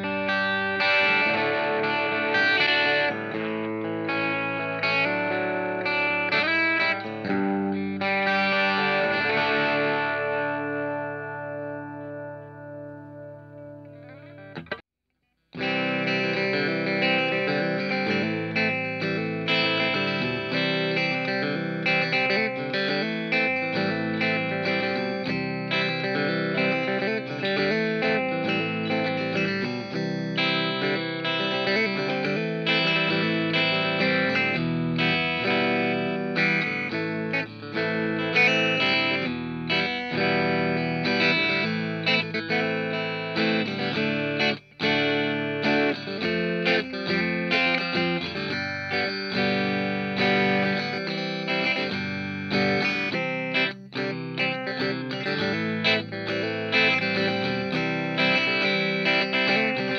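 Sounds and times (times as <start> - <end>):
electric guitar notes and chords: 0.0 - 14.8, 15.5 - 59.9.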